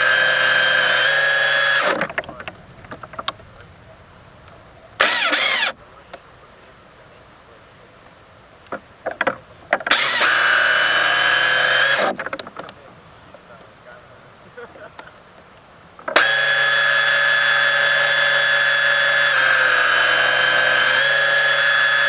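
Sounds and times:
small boat motor whining: 0:00.0 - 0:05.8, 0:08.8 - 0:13.4, 0:16.0 - 0:22.0
clicks: 0:01.8 - 0:03.7, 0:04.4 - 0:06.3.

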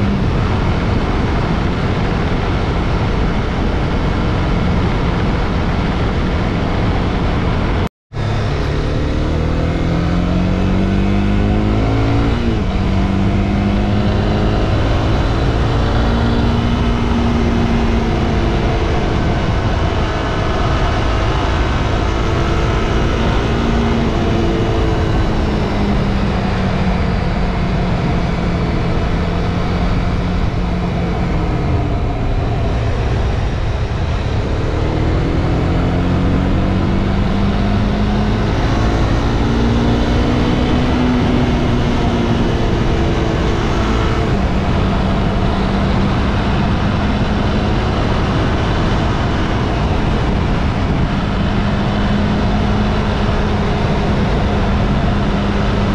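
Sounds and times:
motorcycle engine accelerating: 0:00.0 - 0:55.9
strong wind rush: 0:00.0 - 0:55.9.

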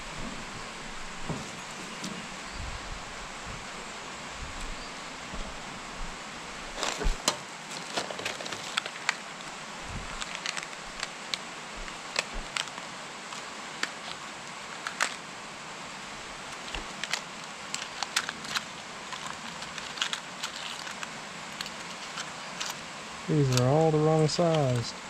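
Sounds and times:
faint hiss: 0:00.0 - 0:25.0
plastic bag crinkling: 0:06.7 - 0:15.3, 0:16.0 - 0:23.8.

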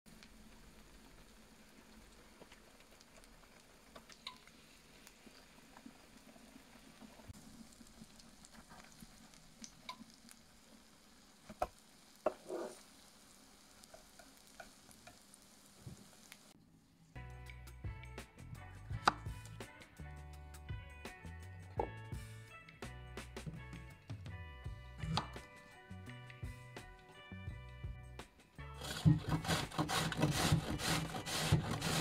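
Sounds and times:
fritters sizzling in oil: 0:07.3 - 0:16.6.

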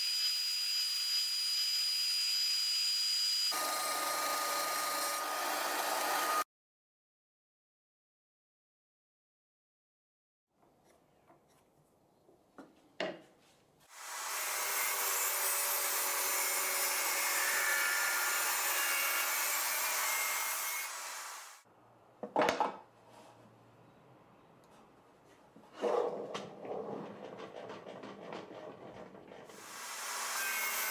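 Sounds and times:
table saw cutting wood: 0:00.0 - 0:06.5, 0:13.9 - 0:21.6, 0:29.5 - 0:30.9
wooden knocks: 0:22.2 - 0:22.8, 0:26.3 - 0:29.5.

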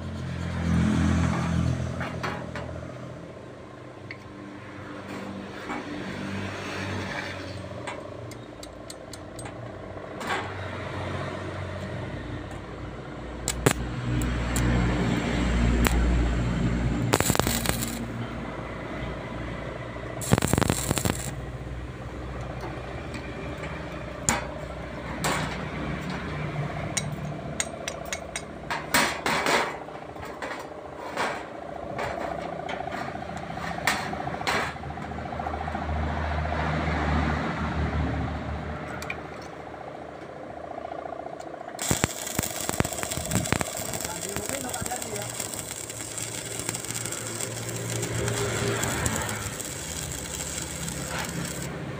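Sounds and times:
sharp welding pops: 0:13.4 - 0:16.2, 0:17.0 - 0:18.2, 0:20.2 - 0:21.4, 0:41.8 - 0:51.8
welding arc crackling and hissing: 0:13.5 - 0:18.2, 0:20.2 - 0:21.8, 0:41.8 - 0:51.9.

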